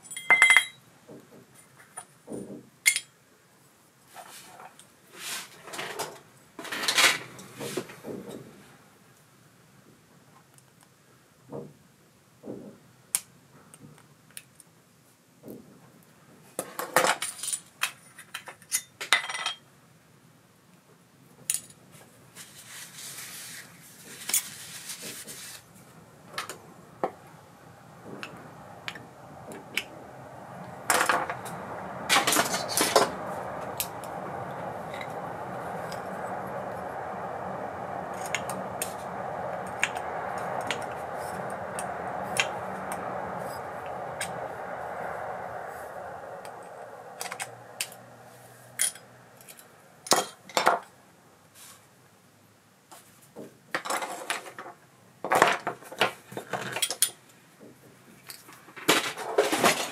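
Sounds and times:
steady noise: 0:05.5 - 0:09.1, 0:24.2 - 0:51.7.

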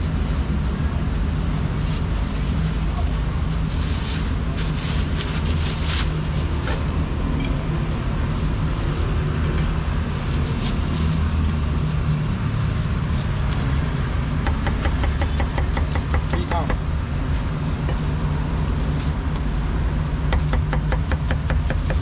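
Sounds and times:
street traffic rumble: 0:00.0 - 0:22.0
cleaver chopping on wooden board: 0:14.5 - 0:16.8, 0:20.3 - 0:22.0.

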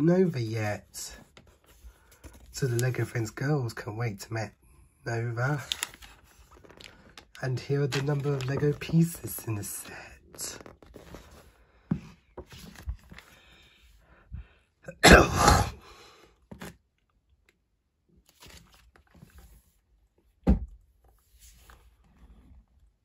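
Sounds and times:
paper pages turning and rustling: 0:01.2 - 0:03.0, 0:05.5 - 0:13.4, 0:18.2 - 0:19.8.

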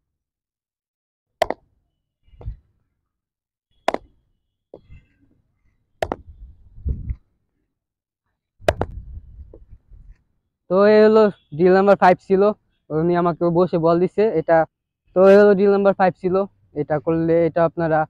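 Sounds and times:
cricket bat hitting ball: 0:01.4 - 0:01.7, 0:03.9 - 0:04.1, 0:06.0 - 0:06.3, 0:08.6 - 0:09.0.

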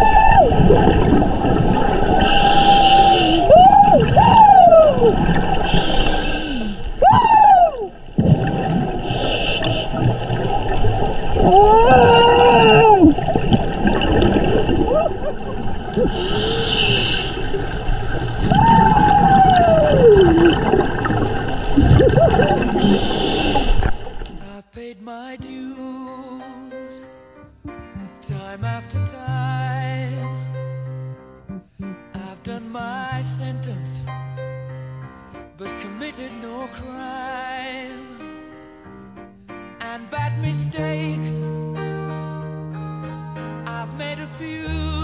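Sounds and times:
regulator exhaling bubbles: 0:00.0 - 0:24.5
whale song underwater: 0:00.0 - 0:24.5.

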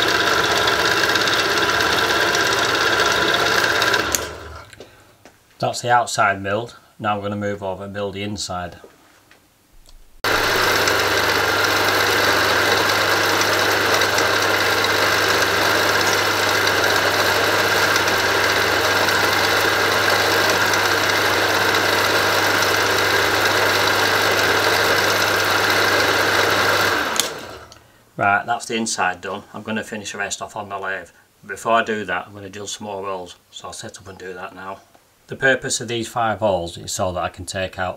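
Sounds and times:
milling machine cutting brass: 0:10.3 - 0:27.6.

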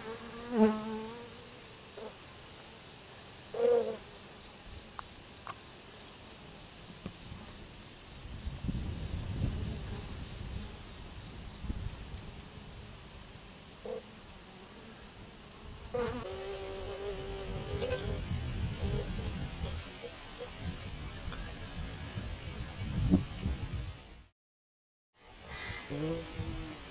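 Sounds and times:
bees buzzing: 0:00.0 - 0:02.1, 0:25.5 - 0:26.9.

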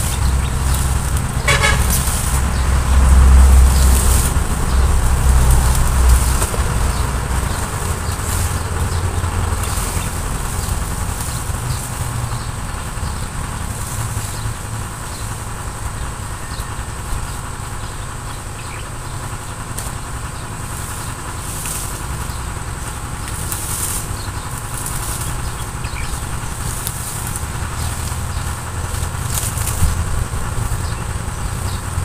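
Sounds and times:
low engine-like hum: 0:00.0 - 0:32.0.

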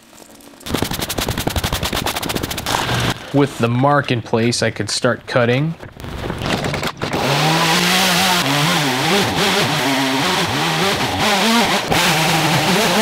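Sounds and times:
chainsaw cutting a log: 0:00.6 - 0:03.3, 0:06.0 - 0:13.0.

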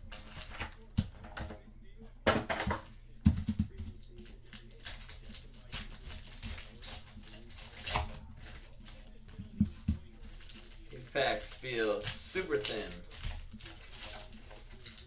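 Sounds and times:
plastic wrappers crinkling and tearing: 0:00.1 - 0:00.9, 0:04.0 - 0:15.0.

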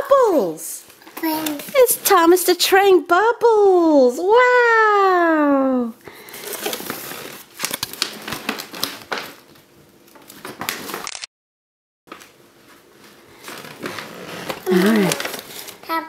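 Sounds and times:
paper bag and tissue paper crinkling: 0:06.2 - 0:11.1, 0:12.1 - 0:16.0.

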